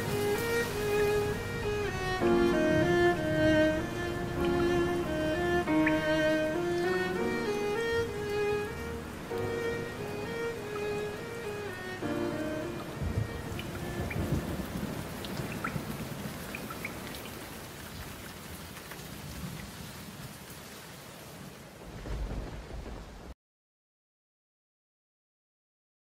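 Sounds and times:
violin music: 0.0 - 15.2
thunder rumbling: 0.0 - 17.1, 21.7 - 23.3
raindrops ticking: 0.0 - 20.4
steady rain: 0.0 - 23.4.

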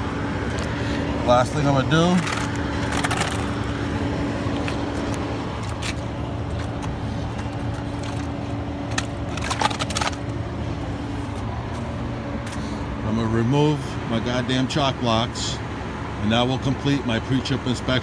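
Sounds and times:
truck diesel engine idling: 0.0 - 9.5.

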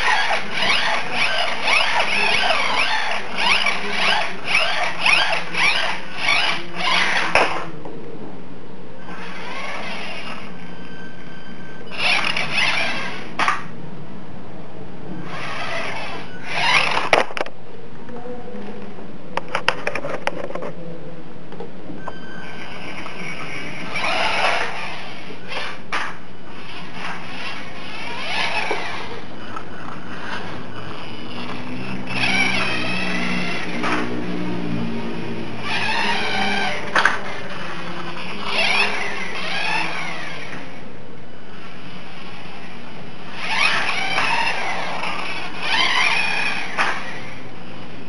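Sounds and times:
toy truck motor whirring: 0.0 - 7.7, 9.1 - 10.5, 11.9 - 13.6, 15.2 - 17.5, 22.7 - 34.4, 35.5 - 40.8, 41.5 - 47.4
steady low hum: 0.0 - 48.0.

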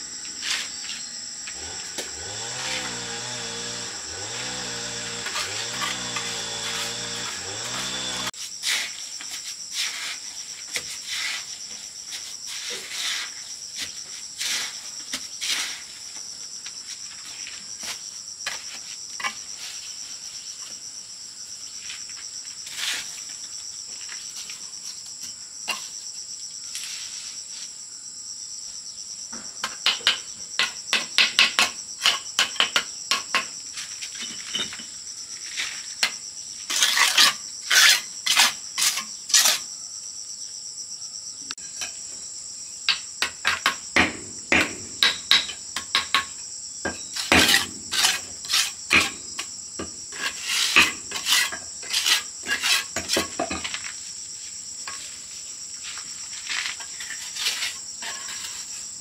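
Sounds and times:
insects chorus: 0.0 - 59.0
taps and scrapes of brickwork: 17.8 - 19.6, 29.4 - 39.7, 42.9 - 54.0, 56.5 - 58.9.

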